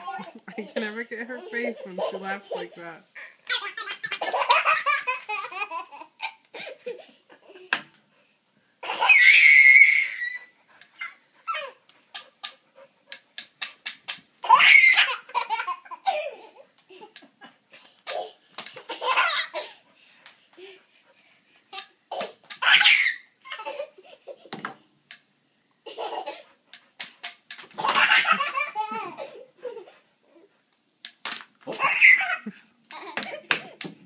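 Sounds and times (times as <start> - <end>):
toddler belly-laughing: 0.0 - 0.8, 1.4 - 7.8, 18.1 - 19.8, 25.9 - 26.5, 27.8 - 30.0.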